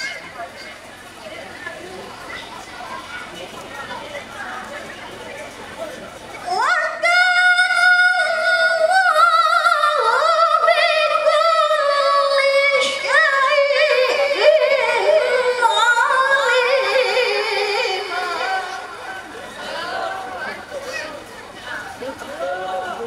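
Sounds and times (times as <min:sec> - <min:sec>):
woman reciting melodically: 0:06.4 - 0:20.6.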